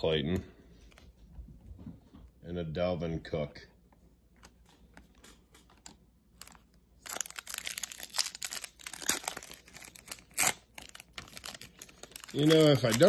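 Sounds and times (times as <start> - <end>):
foil wrapper crinkling and tearing: 5.7 - 13.0.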